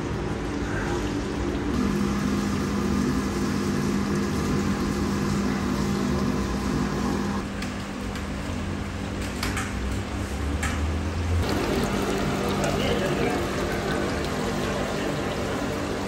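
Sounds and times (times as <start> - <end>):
machine humming: 0.0 - 7.5, 11.2 - 16.0
noisy kitchen background: 0.0 - 16.0.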